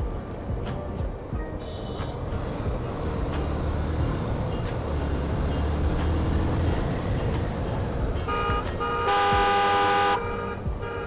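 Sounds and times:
motorcycle engine and road rumble: 0.0s - 11.0s
vehicle horn blast: 1.6s - 2.2s, 8.2s - 11.0s.

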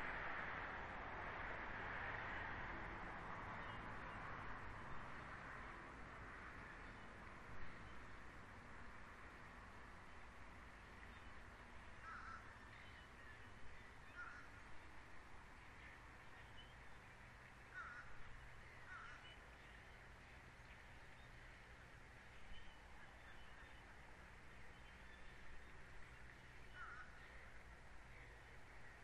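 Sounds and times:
low hum and hiss: 0.0s - 29.0s
faint bird calls: 12.0s - 14.7s, 17.6s - 20.0s, 24.6s - 29.0s.

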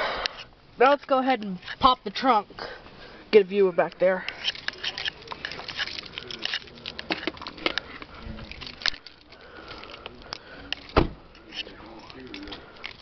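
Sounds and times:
rustling and handling noise: 3.9s - 13.0s
dull thump: 11.0s - 11.2s.

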